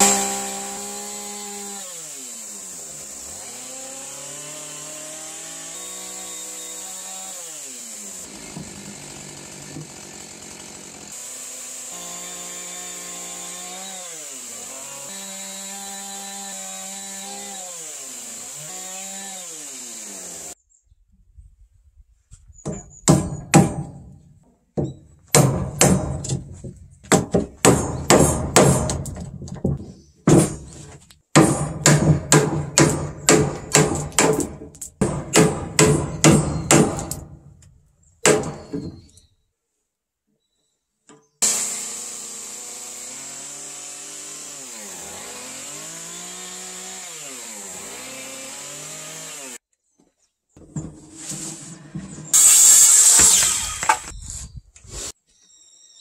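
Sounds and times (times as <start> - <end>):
chainsaw cutting wood: 0.0 - 20.6, 27.1 - 29.4, 30.3 - 38.9, 41.4 - 49.6, 52.3 - 54.2.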